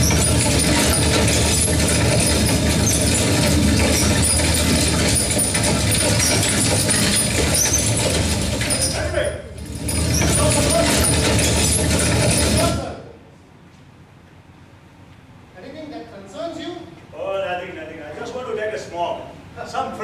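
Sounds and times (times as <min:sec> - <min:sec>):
stagecoach rumbling over speakers: 0:00.0 - 0:13.0.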